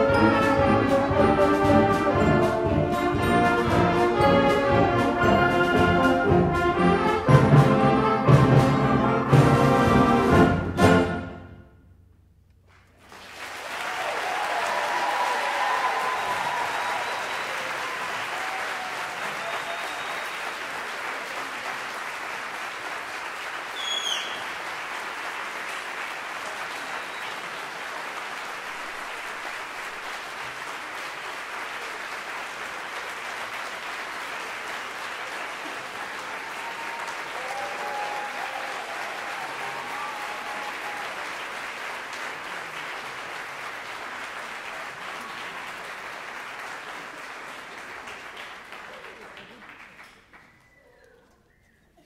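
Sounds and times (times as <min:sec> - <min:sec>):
audience applauding: 0:12.6 - 0:52.0
voices cheering: 0:13.6 - 0:20.8, 0:35.7 - 0:41.6
high falling whistle: 0:23.8 - 0:24.5.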